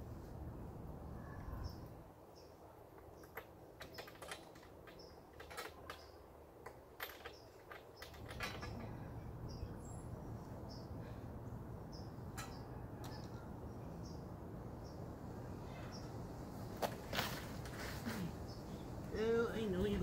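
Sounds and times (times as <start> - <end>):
clicks and knocks of hand work: 3.0 - 9.0
bird chirping: 9.1 - 11.0.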